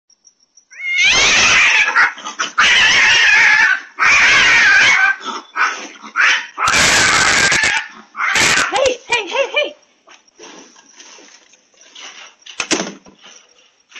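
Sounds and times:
cats screaming yowls: 0.7 - 9.0.

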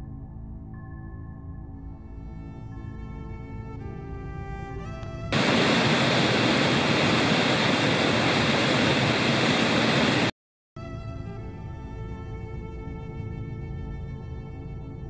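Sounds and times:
background music with held notes: 0.0 - 5.4, 10.8 - 15.0.

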